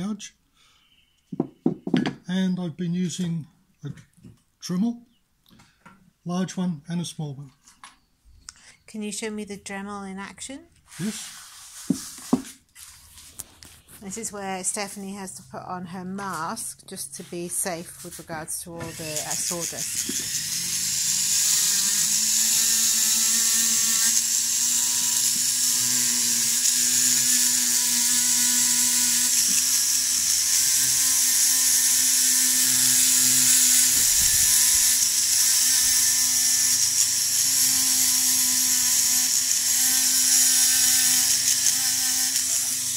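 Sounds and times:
rotary tool sanding wood: 0:10.9 - 0:15.1, 0:16.4 - 0:42.9.

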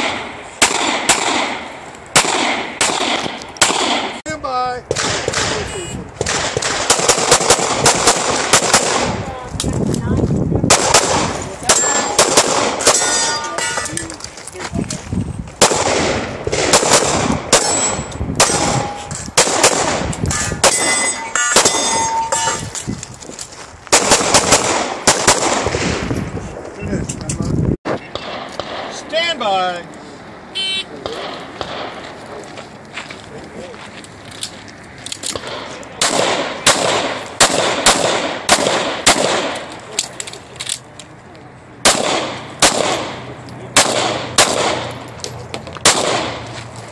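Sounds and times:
pistol shots: 0:00.0 - 0:04.2, 0:04.9 - 0:09.2, 0:10.7 - 0:13.8, 0:15.6 - 0:22.5, 0:23.9 - 0:26.0, 0:28.1 - 0:29.0, 0:31.0 - 0:32.0, 0:35.3 - 0:39.8, 0:41.8 - 0:45.1, 0:45.8 - 0:46.5
steel targets ringing: 0:11.7 - 0:12.2, 0:12.8 - 0:14.0, 0:17.6 - 0:19.1, 0:20.3 - 0:22.7
handgun shots: 0:15.6 - 0:22.5.

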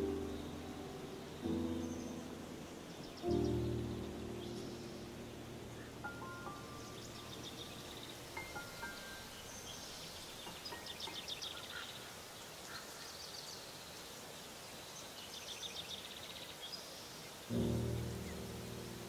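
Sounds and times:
birds trilling: 0:00.0 - 0:13.1
stream running over rocks: 0:04.4 - 0:19.0.

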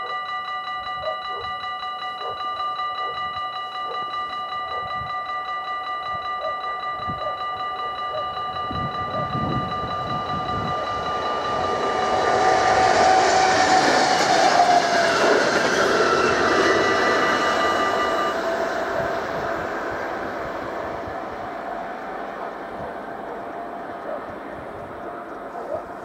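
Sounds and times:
level crossing bell ringing: 0:00.0 - 0:25.2
train wheels rushing past: 0:08.5 - 0:26.0.

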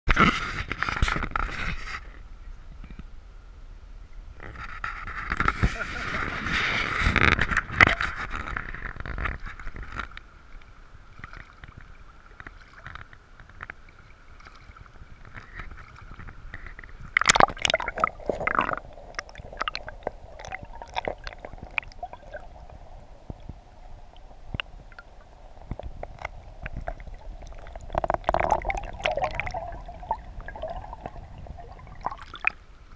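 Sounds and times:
muffled underwater gurgling: 0:16.5 - 0:32.6.

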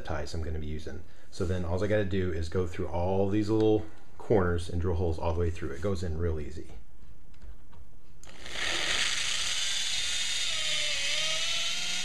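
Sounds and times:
power drill boring into wood: 0:08.2 - 0:12.0.

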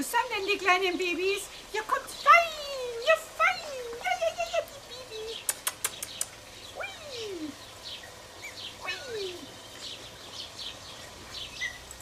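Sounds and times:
small birds chirping: 0:00.0 - 0:12.0
sharp clicks: 0:05.4 - 0:06.4.

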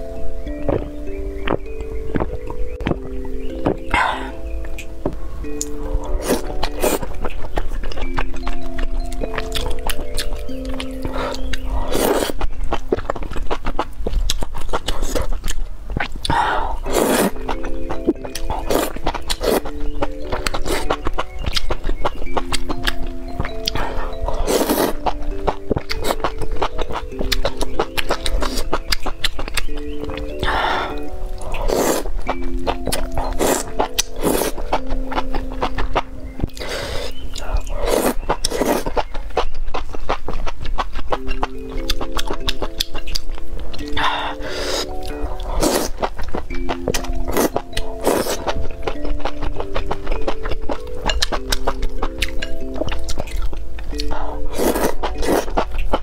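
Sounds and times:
background music with held notes: 0:00.0 - 0:56.0
wet chewing clicks: 0:00.0 - 0:56.0
slurping: 0:09.4 - 0:13.3, 0:16.2 - 0:22.4, 0:23.5 - 0:43.2, 0:43.8 - 0:56.0
slurping noodles: 0:16.9 - 0:17.4, 0:23.8 - 0:25.0, 0:31.5 - 0:32.1, 0:54.2 - 0:55.6.

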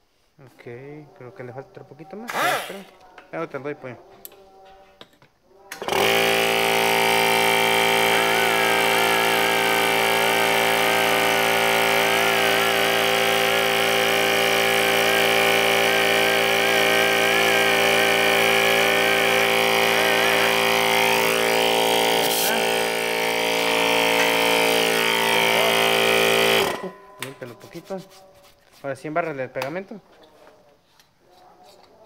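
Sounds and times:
electric air compressor running: 0:02.3 - 0:02.9, 0:05.8 - 0:28.0.

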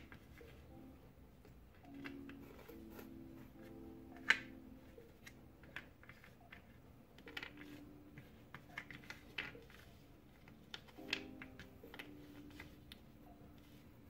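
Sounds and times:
puzzle pieces clicking and tapping: 0:05.2 - 0:09.8, 0:10.4 - 0:12.7.

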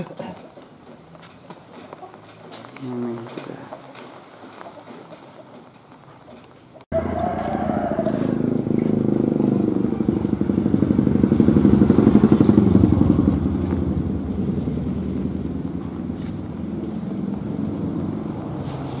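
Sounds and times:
small motorcycle engine passing: 0:06.9 - 0:19.0.

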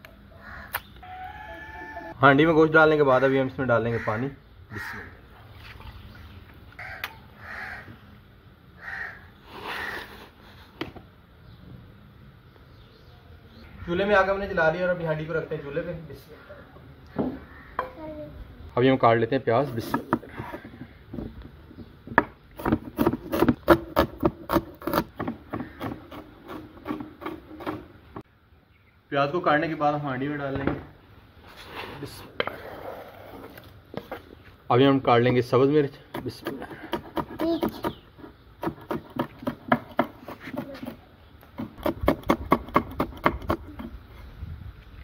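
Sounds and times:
knife chopping on wooden board: 0:38.6 - 0:41.0.

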